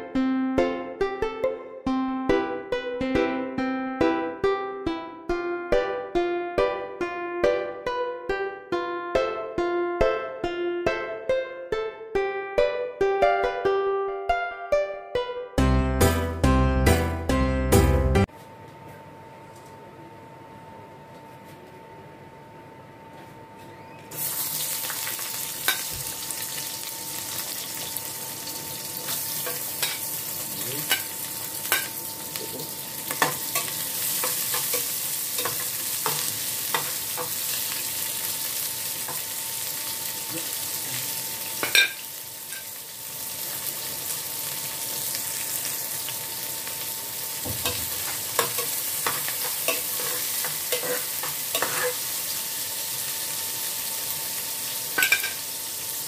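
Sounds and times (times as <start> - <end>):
onions sizzling in hot oil: 24.1 - 56.0
metal spoon scraping pot: 48.4 - 52.0.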